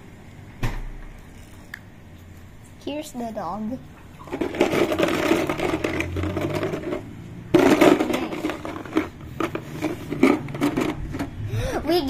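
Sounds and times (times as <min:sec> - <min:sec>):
plastic puzzle pieces rattling: 0:04.3 - 0:11.4.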